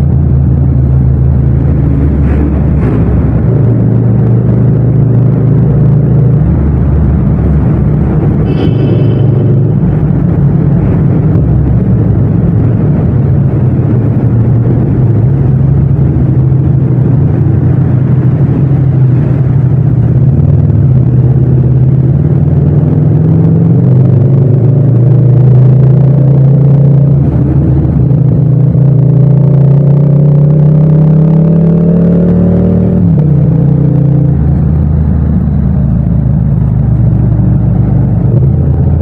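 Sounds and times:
motorcycle engine running: 0:00.0 - 0:29.8.

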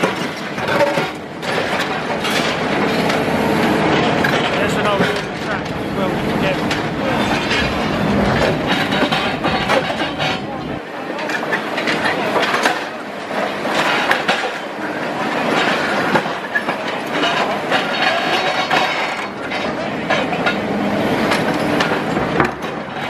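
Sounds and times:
concrete crushing and cracking: 0:04.0 - 0:12.7.

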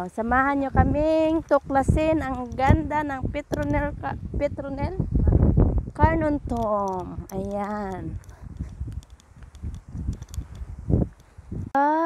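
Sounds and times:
wind buffeting microphone: 0:00.0 - 0:11.8
faint footsteps on pavement: 0:00.6 - 0:04.8, 0:05.7 - 0:11.7.

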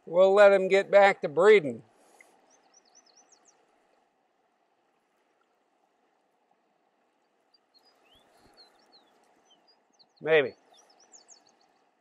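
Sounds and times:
faint river flow: 0:00.0 - 0:12.0
faint high bird chirps: 0:02.4 - 0:03.6, 0:07.2 - 0:12.0.

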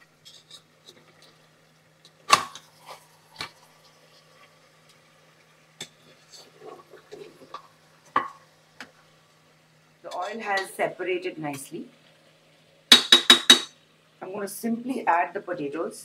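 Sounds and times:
spatula clanking and scraping pot: 0:10.1 - 0:10.8.

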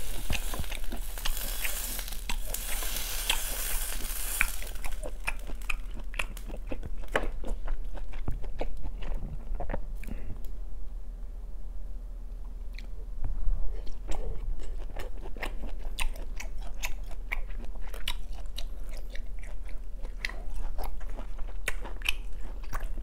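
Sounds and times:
beef sizzling on grill pan: 0:00.0 - 0:05.7
close chewing: 0:00.0 - 0:10.3, 0:13.8 - 0:23.0.

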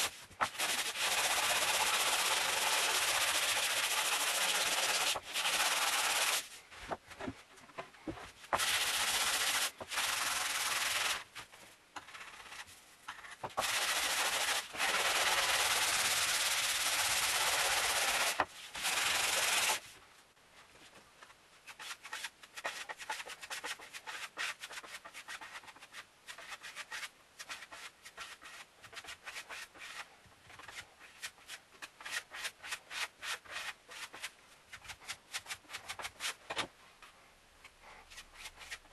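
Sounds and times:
sandpaper rubbing on wood: 0:00.0 - 0:06.5, 0:08.6 - 0:11.3, 0:13.6 - 0:19.8
putty knife scraping: 0:21.7 - 0:36.7, 0:38.1 - 0:38.9.

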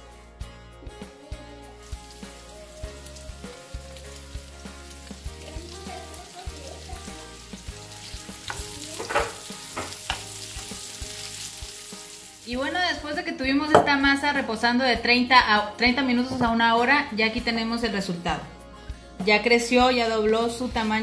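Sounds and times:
sausage sizzling in oil: 0:01.7 - 0:14.2.

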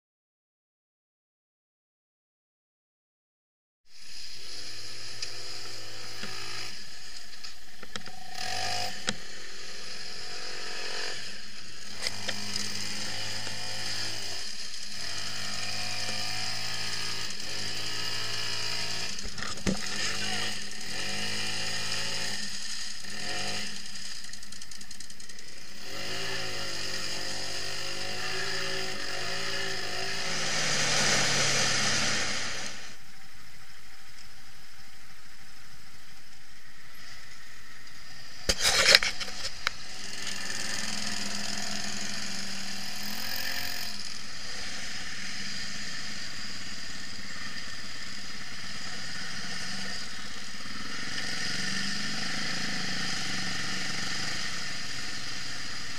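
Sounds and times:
buggy engine revving: 0:04.4 - 0:33.0, 0:38.2 - 0:55.9.

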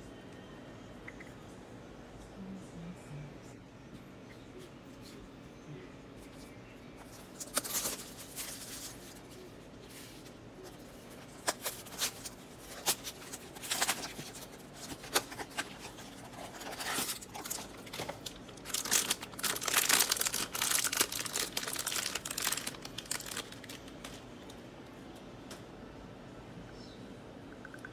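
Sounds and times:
foil wrapper crinkling and tearing: 0:07.0 - 0:24.3.

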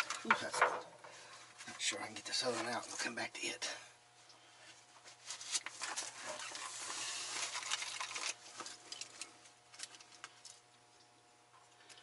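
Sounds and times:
clothing and gloves rustling: 0:04.8 - 0:08.8.

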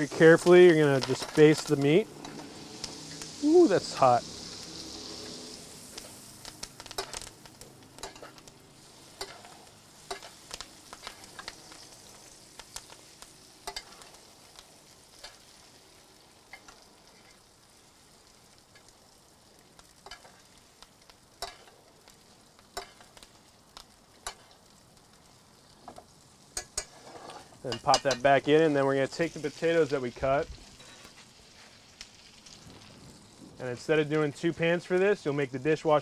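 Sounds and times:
butter sizzling in a skillet: 0:00.0 - 0:36.0
sharp pops and clicks: 0:05.9 - 0:08.6.

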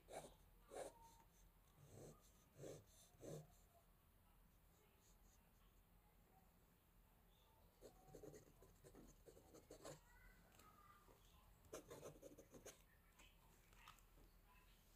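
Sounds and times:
fountain pen scratching on paper: 0:01.8 - 0:03.5, 0:08.1 - 0:10.0, 0:11.7 - 0:12.8.

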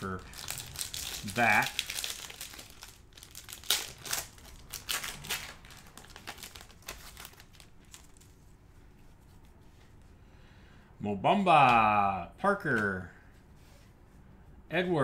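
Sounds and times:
plastic wrapper crinkling: 0:00.0 - 0:08.4.

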